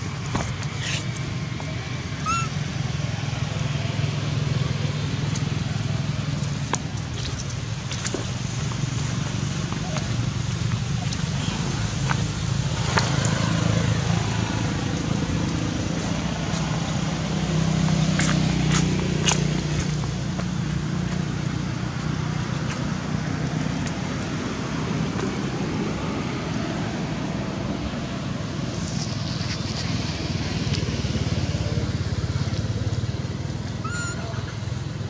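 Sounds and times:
outdoor background noise: 0.0s - 35.0s
vehicle engine humming: 0.0s - 35.0s
short high squeak: 2.2s - 2.5s, 33.8s - 34.5s.

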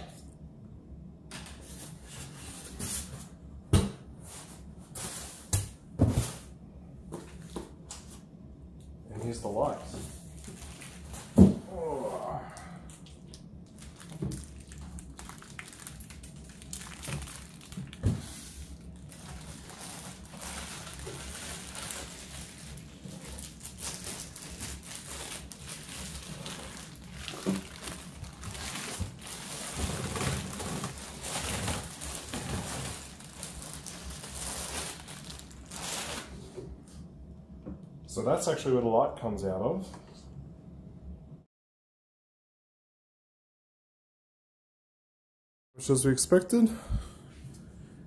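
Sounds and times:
plastic wrapping crinkling: 10.3s - 11.4s, 13.6s - 36.3s.

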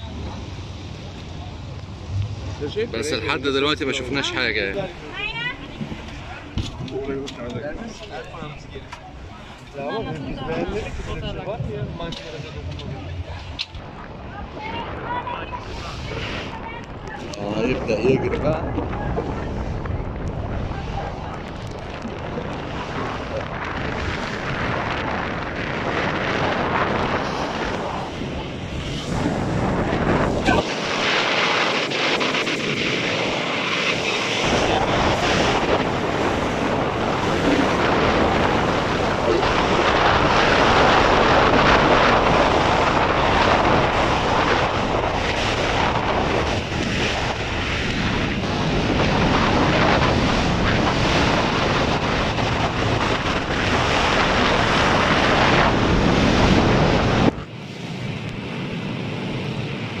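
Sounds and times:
water rushing past boat: 0.0s - 60.0s
wind blasting microphone: 0.0s - 60.0s.

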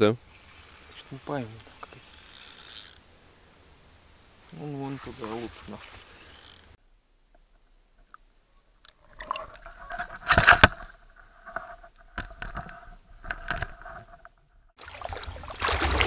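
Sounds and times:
knocks scrapes and wet rustles: 4.5s - 6.8s, 8.9s - 16.0s.

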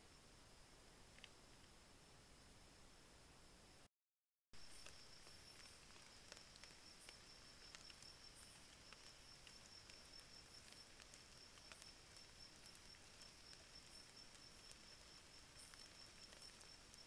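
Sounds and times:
low hiss: 0.0s - 3.9s, 4.6s - 17.0s
faint ticks and clicks: 1.0s - 1.8s, 4.6s - 17.0s.

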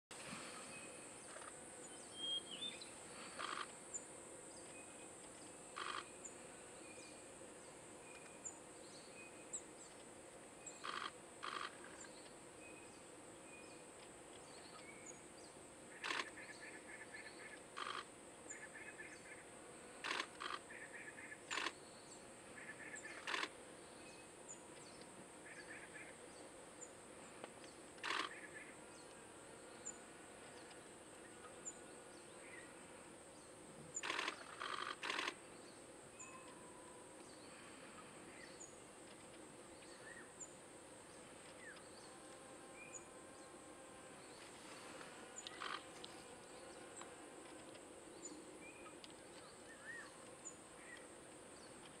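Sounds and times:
high-pitched insect drone: 3.1s - 3.8s, 5.8s - 6.4s, 10.8s - 12.1s
birds chirping: 44.2s - 52.0s.

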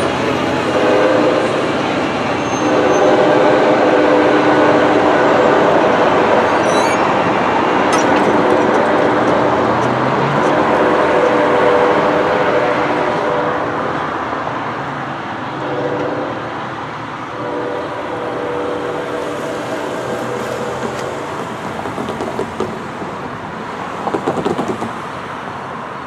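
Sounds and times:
train air horn blasts: 0.0s - 7.2s, 8.0s - 14.2s, 15.5s - 16.7s, 17.3s - 21.7s
train rumbling: 0.0s - 26.0s
car tyres bumping over rails: 20.8s - 23.2s, 24.0s - 25.1s.

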